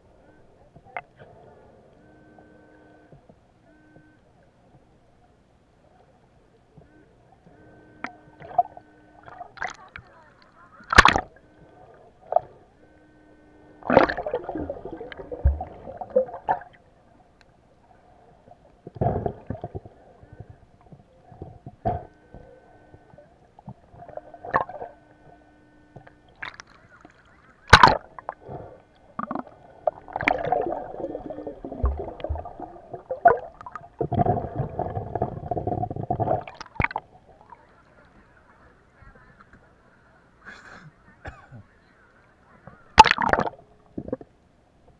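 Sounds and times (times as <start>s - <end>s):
faint steady buzz: 0.0s - 44.9s
churning water and stirred sand: 26.3s - 37.1s.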